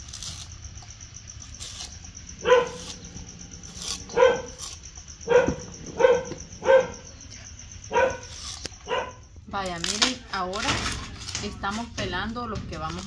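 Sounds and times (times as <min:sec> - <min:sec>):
dog barking: 0:02.4 - 0:03.0, 0:04.0 - 0:07.1, 0:07.8 - 0:09.3.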